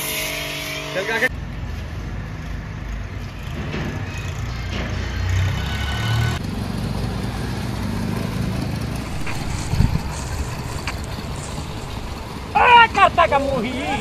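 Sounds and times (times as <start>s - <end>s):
motor running with low rumble: 8.9s - 12.6s.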